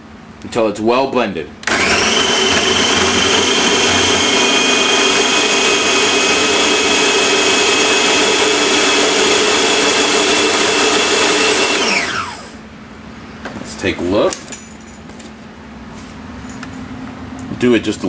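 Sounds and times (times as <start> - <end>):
food processor motor whining: 1.6 - 12.6.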